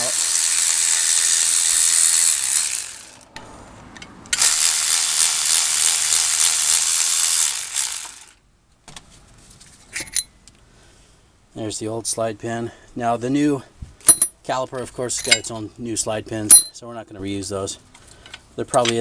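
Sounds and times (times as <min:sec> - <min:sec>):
electric ratchet whirring: 0:00.0 - 0:03.4, 0:04.4 - 0:08.4.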